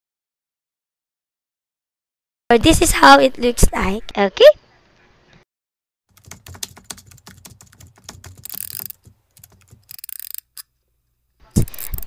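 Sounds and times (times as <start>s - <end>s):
computer keyboard typing: 6.1s - 10.6s.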